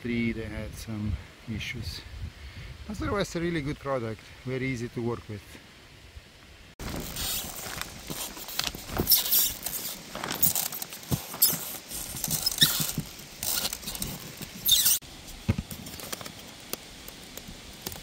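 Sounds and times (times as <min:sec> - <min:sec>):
foam panels squeaking underfoot: 0:06.8 - 0:15.0.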